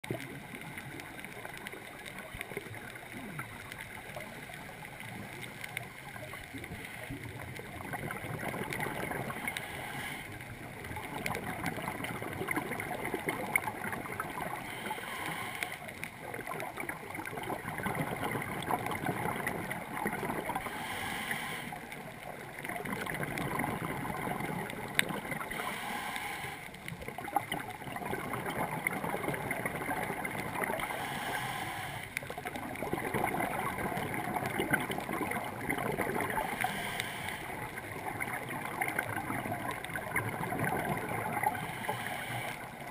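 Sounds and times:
bubbles gurgling underwater: 0:00.0 - 0:09.7, 0:10.5 - 0:15.0, 0:16.0 - 0:20.8, 0:21.8 - 0:25.6, 0:26.8 - 0:31.0, 0:32.2 - 0:42.9
regulator inhale hiss: 0:09.2 - 0:10.6, 0:14.4 - 0:16.1, 0:20.6 - 0:22.0, 0:25.4 - 0:27.0, 0:30.6 - 0:32.3, 0:36.3 - 0:37.8, 0:41.4 - 0:42.8.

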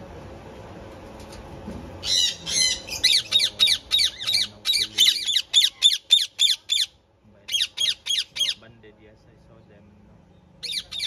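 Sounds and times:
parakeet squawking harshly: 0:02.0 - 0:08.6, 0:10.6 - 0:11.0.

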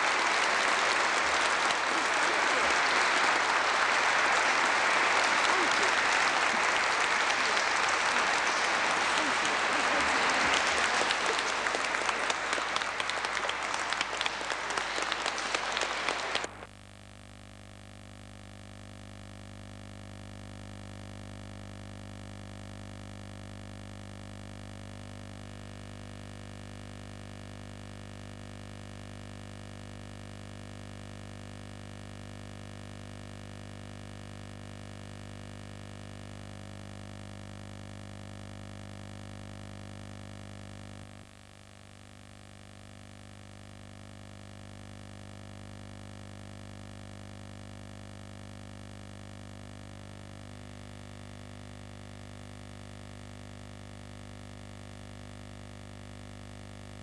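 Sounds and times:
audience applauding: 0:00.0 - 0:16.6.

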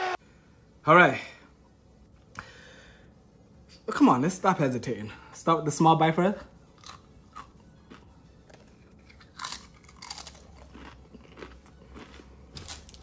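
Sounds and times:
person chewing crunchy food: 0:06.8 - 0:13.0
person crunching a chip: 0:06.8 - 0:13.0.

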